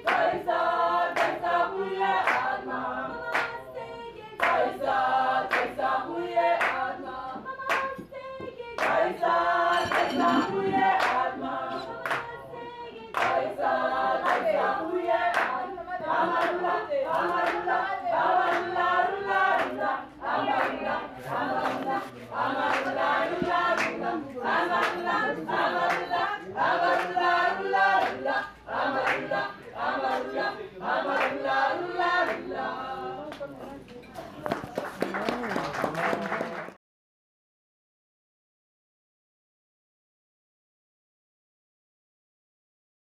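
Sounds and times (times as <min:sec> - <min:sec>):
choir singing: 0:00.0 - 0:33.8
hand claps: 0:00.1 - 0:00.4, 0:01.1 - 0:01.4, 0:02.2 - 0:02.6, 0:03.3 - 0:03.6, 0:04.4 - 0:04.7, 0:05.5 - 0:05.8, 0:06.6 - 0:06.9, 0:07.6 - 0:09.1, 0:09.8 - 0:12.4, 0:13.1 - 0:13.5, 0:15.3 - 0:15.6, 0:16.4 - 0:16.6, 0:17.2 - 0:17.6, 0:18.5 - 0:18.7, 0:19.6 - 0:19.8, 0:21.5 - 0:24.0, 0:24.7 - 0:25.1, 0:25.8 - 0:26.1, 0:26.9 - 0:27.2, 0:28.0 - 0:28.2, 0:29.0 - 0:29.3, 0:34.4 - 0:36.8.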